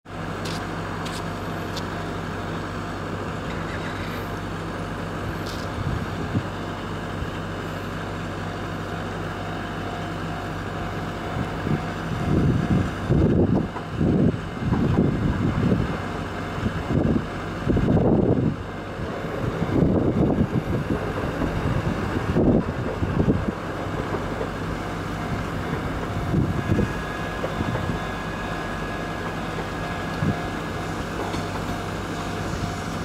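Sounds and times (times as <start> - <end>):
wind buffeting microphone: 5.3 - 6.6, 11.4 - 28.3.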